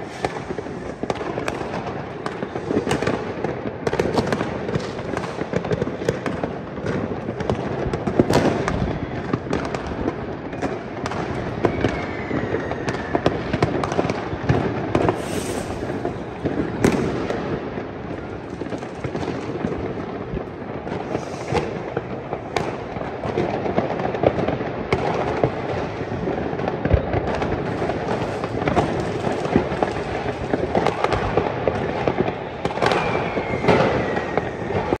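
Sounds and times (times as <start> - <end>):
whistling rocket: 0.0 - 6.4, 8.2 - 17.6, 20.9 - 23.5, 26.8 - 35.0
fireworks and firecrackers banging: 0.0 - 35.0.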